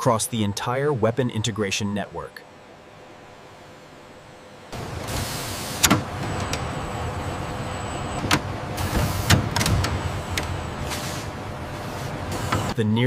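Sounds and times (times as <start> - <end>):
mechanical clicks and clanks: 4.8 - 7.2, 8.2 - 11.0.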